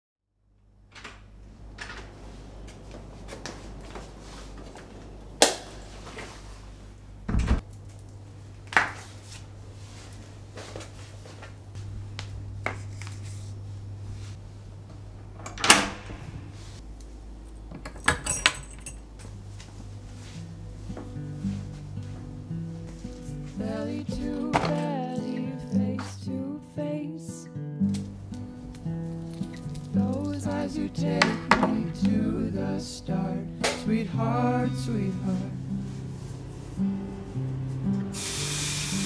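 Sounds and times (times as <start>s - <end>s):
low steady hum: 0.4s - 27.2s
metallic jingle: 18.0s - 19.4s.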